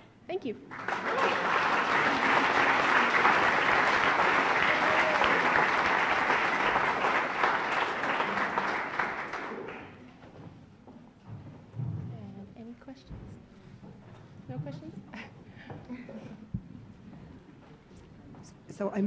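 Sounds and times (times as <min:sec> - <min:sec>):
audience applauding: 0:00.7 - 0:10.1.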